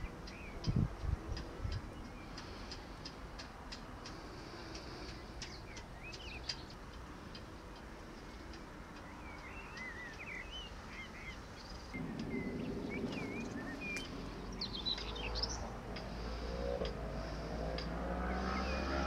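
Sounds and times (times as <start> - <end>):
small birds chirping: 0.0 - 19.0
low steady rumble: 11.9 - 17.5
faint rising tones: 11.9 - 19.0.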